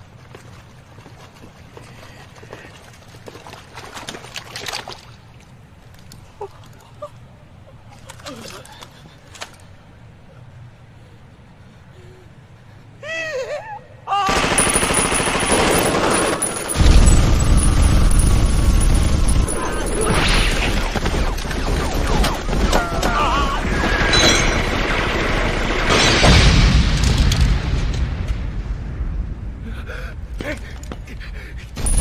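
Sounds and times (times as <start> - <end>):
heavy machine-gun fire: 14.3 - 27.9.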